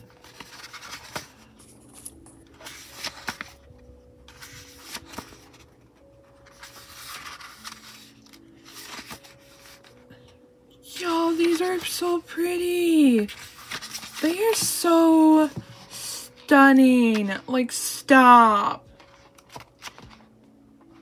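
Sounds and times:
paper rustling: 0.0 - 10.1, 11.0 - 17.5, 18.8 - 21.0
book pages turning: 0.0 - 21.0.

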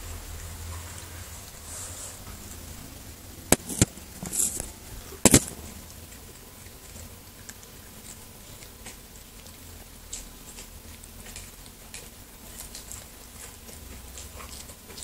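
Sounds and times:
short rustle: 3.5 - 5.8.

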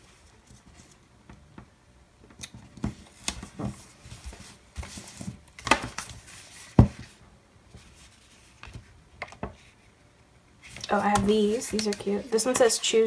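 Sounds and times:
paper rustling: 10.6 - 12.8.

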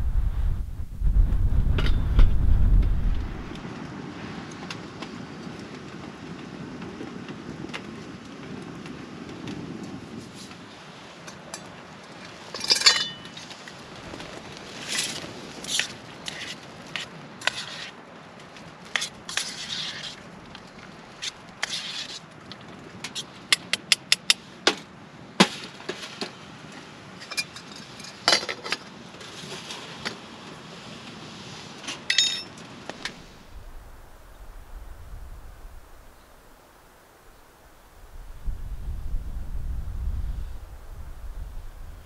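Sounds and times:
cookware clinking and scraping: 32.1 - 32.5.

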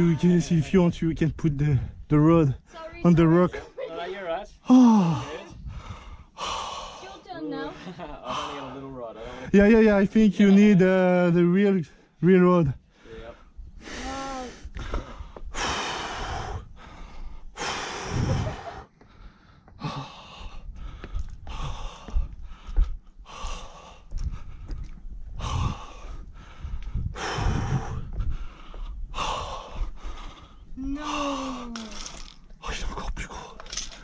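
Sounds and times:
person breathing hard: 4.7 - 7.2, 12.9 - 31.7.

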